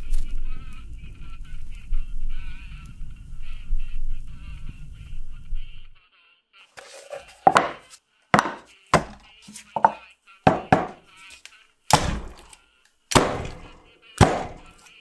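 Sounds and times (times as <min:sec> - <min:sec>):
axe chopping on cutting board: 0:07.4 - 0:11.0, 0:11.9 - 0:14.9.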